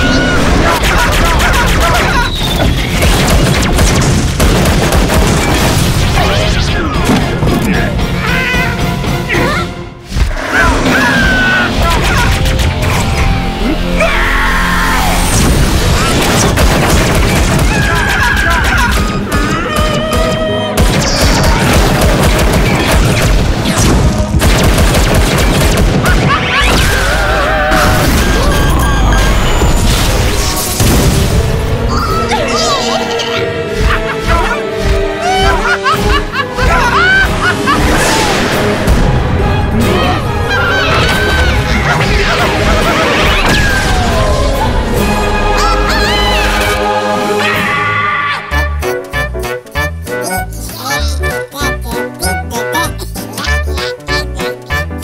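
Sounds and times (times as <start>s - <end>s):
cartoon booms and crashing impacts: 0.0s - 7.6s, 15.2s - 19.0s, 20.8s - 31.8s, 40.9s - 44.6s
dramatic music: 0.0s - 55.0s
shrill cartoon yells: 14.0s - 15.2s, 47.4s - 48.6s.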